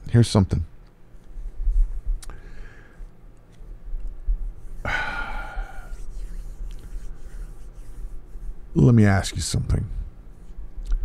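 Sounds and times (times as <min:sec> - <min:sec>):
man sighing: 0:04.9 - 0:05.9.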